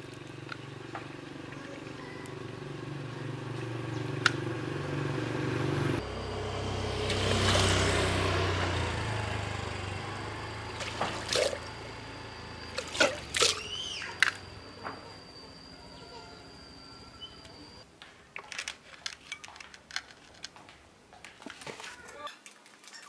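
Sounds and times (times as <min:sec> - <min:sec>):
motor humming: 0:00.0 - 0:17.8
water rushing and splashing: 0:10.7 - 0:11.8.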